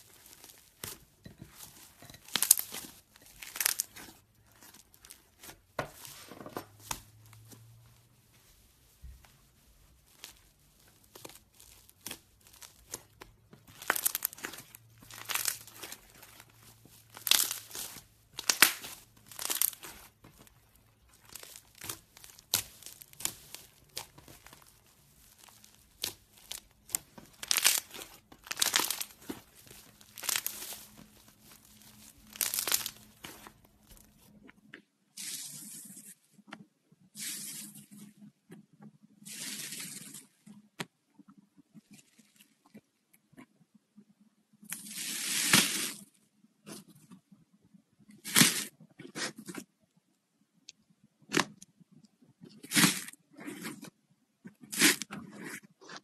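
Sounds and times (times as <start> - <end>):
slime stretching and tearing: 0.0 - 7.8, 8.5 - 34.4, 48.2 - 49.7, 52.5 - 56.0.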